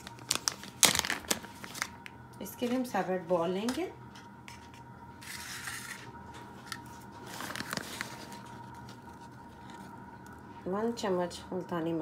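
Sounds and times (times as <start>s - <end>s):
plastic bag rustling: 0.0s - 2.9s, 5.2s - 10.0s.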